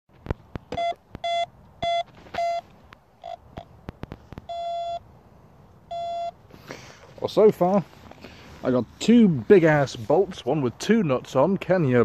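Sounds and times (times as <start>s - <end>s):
metal detector beeps: 0.7s - 3.7s, 4.5s - 5.0s, 5.9s - 6.4s.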